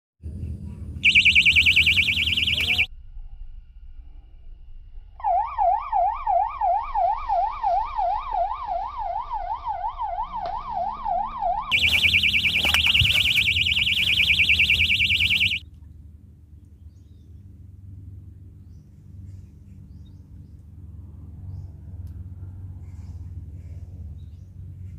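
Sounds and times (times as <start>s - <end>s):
electronic siren alarm: 1.0s - 2.9s, 5.2s - 15.6s.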